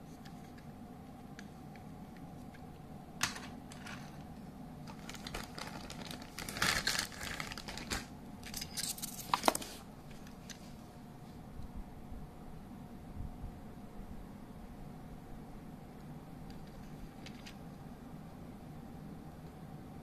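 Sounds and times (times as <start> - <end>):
plastic bag crinkling: 4.8 - 10.4.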